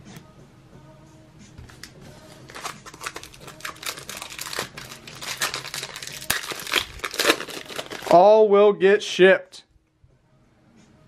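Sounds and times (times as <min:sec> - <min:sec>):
wrapper crinkling and tearing: 0:01.8 - 0:08.2.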